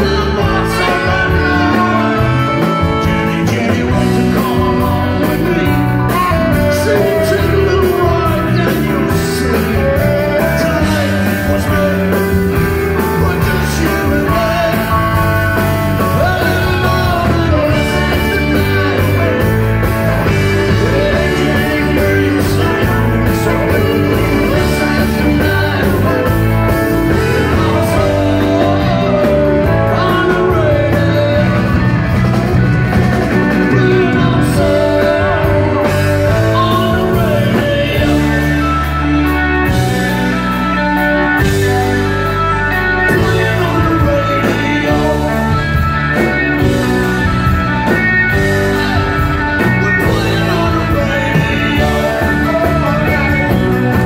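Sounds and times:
lead singer singing: 0:00.0 - 0:54.0
live rock band playing: 0:00.0 - 0:54.0.

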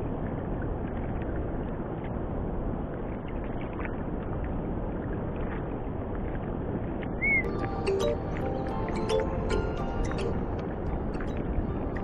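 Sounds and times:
wind on microphone: 0:00.0 - 0:12.0
water washing against boat hull: 0:02.8 - 0:07.4.

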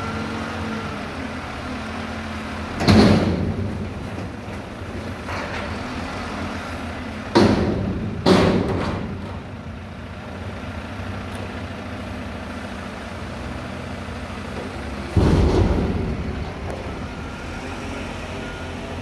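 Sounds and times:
diesel truck engine running: 0:00.0 - 0:19.0
loud metal bangs: 0:07.3 - 0:09.5, 0:15.1 - 0:18.6.

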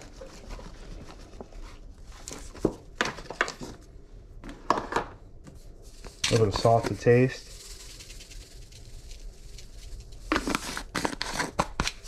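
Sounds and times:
paper bag crinkling: 0:06.1 - 0:12.0
flour pouring into plastic bowl: 0:06.2 - 0:11.8.

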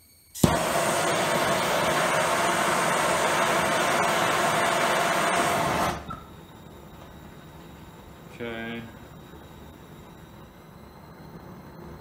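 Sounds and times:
torch flame and air jet hissing: 0:00.4 - 0:06.2.

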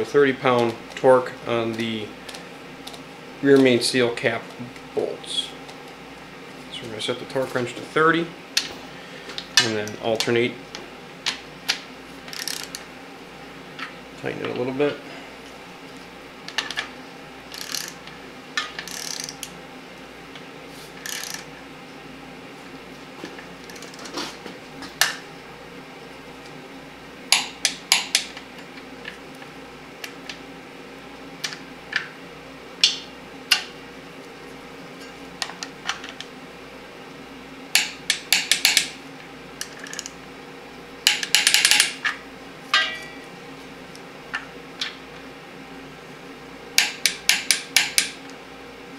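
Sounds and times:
torque wrench ratcheting clicks: 0:12.3 - 0:12.8, 0:17.5 - 0:18.0, 0:18.8 - 0:19.5, 0:21.0 - 0:21.5.

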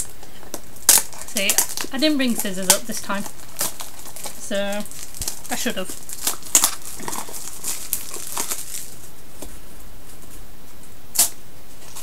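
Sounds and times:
plastic packaging crinkling and tearing: 0:00.0 - 0:09.6.

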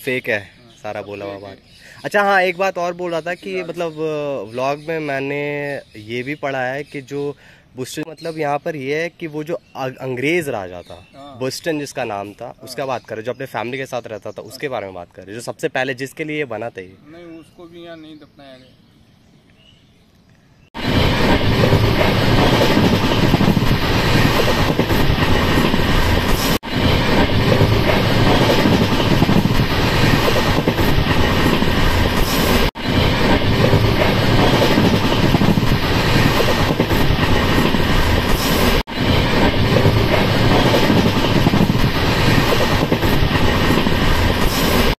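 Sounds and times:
train wheels rumbling on rails: 0:20.8 - 0:44.9.

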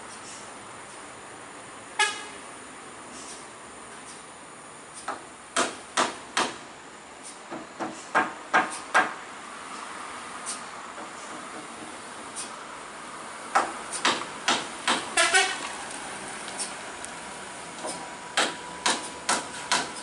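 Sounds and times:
steady background hiss: 0:00.0 - 0:20.0
sharp knocks: 0:05.1 - 0:06.6, 0:07.5 - 0:09.2, 0:13.5 - 0:15.6, 0:17.8 - 0:20.0.

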